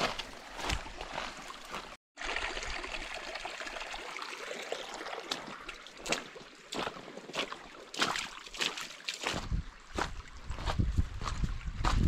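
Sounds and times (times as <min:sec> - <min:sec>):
footsteps on rocky creek bed: 0:00.0 - 0:02.0, 0:05.2 - 0:12.0
creek trickling over rocks: 0:00.0 - 0:10.7.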